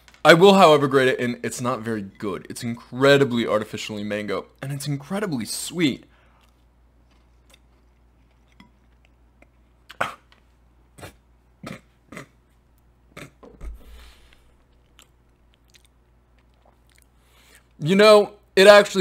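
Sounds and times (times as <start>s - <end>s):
person chewing crunchy pastry: 6.3s - 12.4s, 14.3s - 17.7s.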